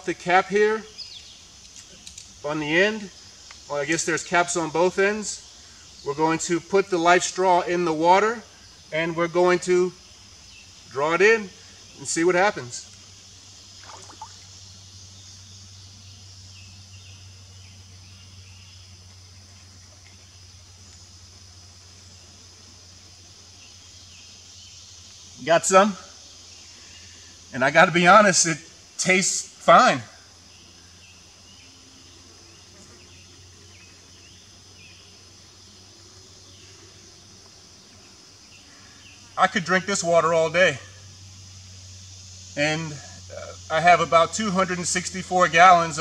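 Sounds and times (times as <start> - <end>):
insects droning: 0.0 - 46.0.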